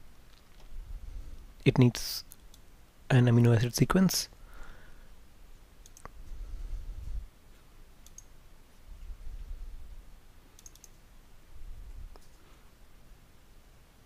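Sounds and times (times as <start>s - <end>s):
faint low rumble: 0.0s - 2.0s, 4.4s - 10.4s, 11.1s - 14.0s
computer mouse clicks: 5.8s - 6.2s, 8.0s - 8.3s, 10.6s - 11.0s.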